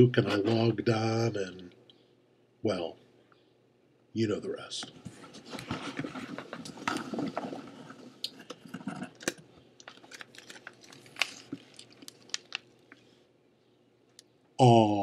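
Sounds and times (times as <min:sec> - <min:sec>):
packaging rustling and crinkling: 0:09.2 - 0:13.0.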